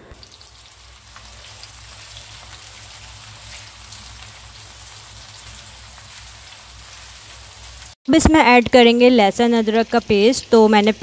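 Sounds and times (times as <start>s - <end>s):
onions sizzling in oil: 0.1s - 11.0s.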